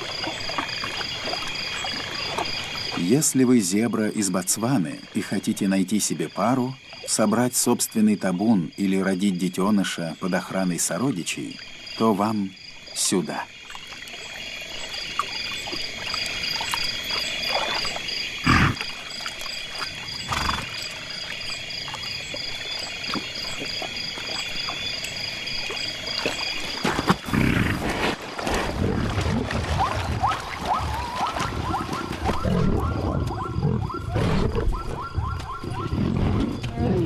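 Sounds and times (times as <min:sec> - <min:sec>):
insects and frogs chorus: 0:00.0 - 0:37.0
animals scuffling and growling: 0:25.8 - 0:37.0.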